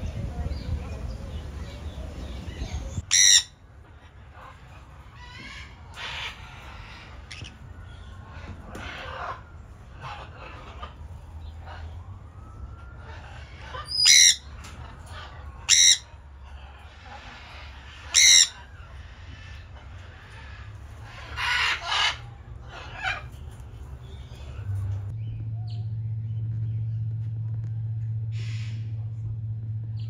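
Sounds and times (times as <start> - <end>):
parrots chattering: 1.7 - 12.0, 13.0 - 24.8
parrots screeching: 3.0 - 12.0, 13.0 - 23.4.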